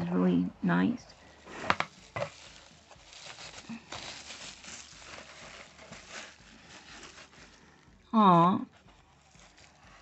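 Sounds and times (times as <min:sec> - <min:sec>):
bubble wrap rustling and crinkling: 0:01.0 - 0:10.0.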